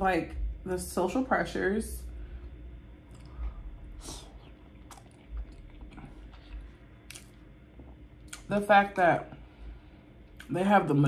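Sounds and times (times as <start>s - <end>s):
wet chewing sounds: 3.0s - 8.5s.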